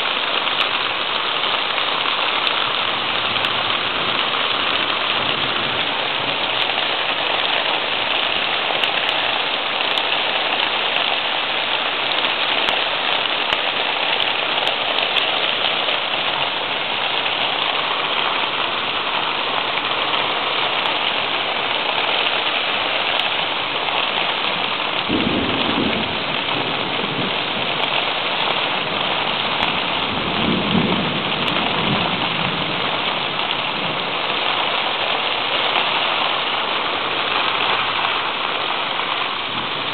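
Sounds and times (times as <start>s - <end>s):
steady rain: 0.0s - 39.9s
low rolls of thunder: 24.6s - 34.4s.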